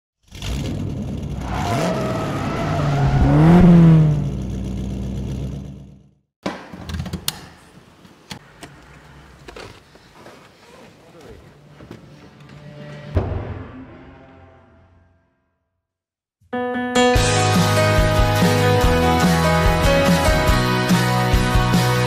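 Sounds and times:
car engine revving: 0:00.3 - 0:06.0.

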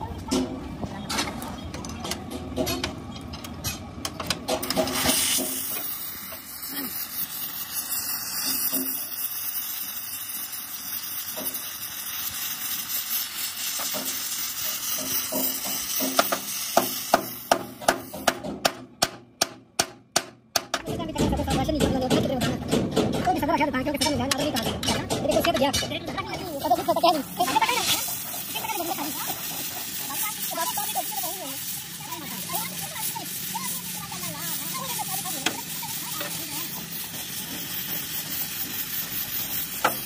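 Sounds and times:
gas torch hissing: 0:04.5 - 0:18.5, 0:25.3 - 0:40.0
sharp metal taps: 0:15.0 - 0:26.3.

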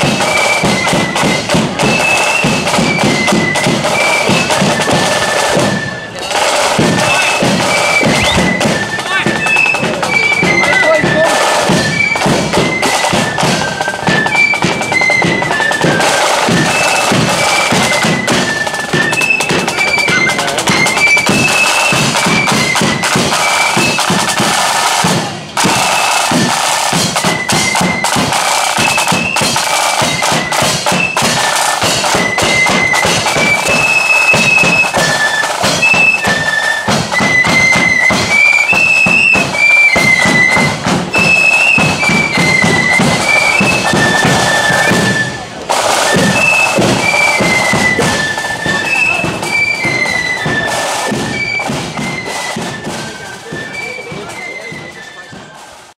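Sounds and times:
flutes playing melody: 0:00.0 - 0:55.9
side drums: 0:00.0 - 0:55.9
bass drum beat: 0:06.9 - 0:10.0.

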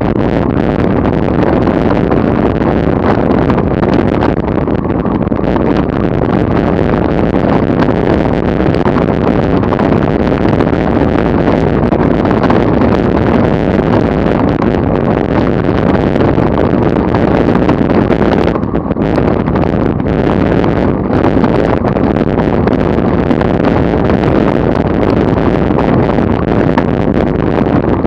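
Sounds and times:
tyre noise on road: 0:00.0 - 0:28.0
wind buffeting microphone: 0:00.0 - 0:28.0.

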